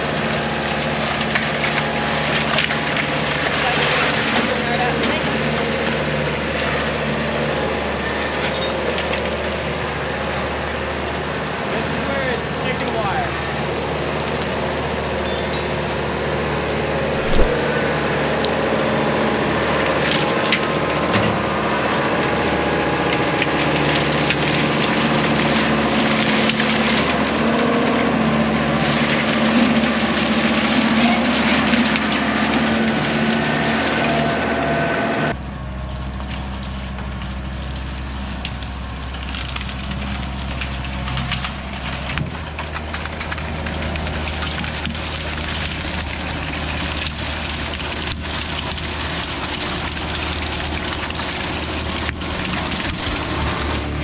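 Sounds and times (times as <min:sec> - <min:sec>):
tractor diesel engine under load: 0:16.1 - 0:54.0
bamboo canes cracking and splintering: 0:35.8 - 0:53.7.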